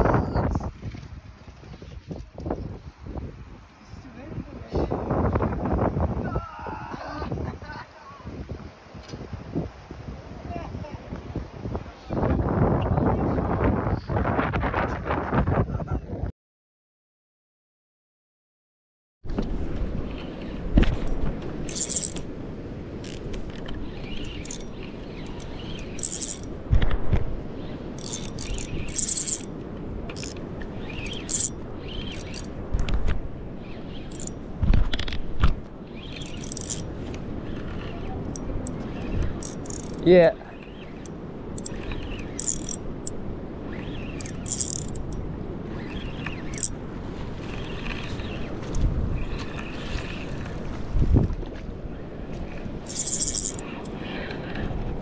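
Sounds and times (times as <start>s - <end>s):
wind and sea noise: 0.0s - 16.3s, 19.2s - 55.0s
fishing reel whirring and clicking: 21.7s - 22.2s, 23.0s - 26.5s, 28.0s - 29.5s, 30.1s - 32.5s, 34.0s - 34.3s, 36.0s - 36.9s, 37.5s - 40.1s, 40.8s - 46.8s, 52.8s - 54.4s.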